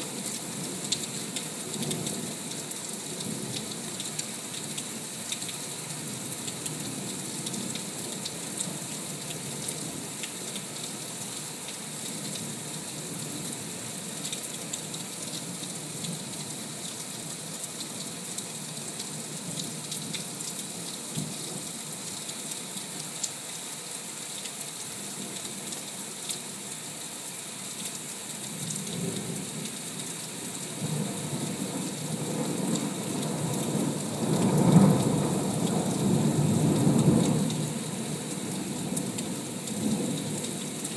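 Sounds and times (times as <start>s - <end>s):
heavy rain falling: 0.0s - 40.9s
raindrops ticking: 0.2s - 11.0s.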